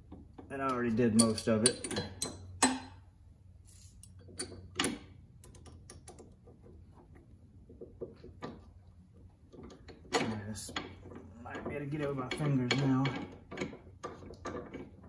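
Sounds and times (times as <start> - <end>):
hand tools clicking on metal: 0.4 - 2.9.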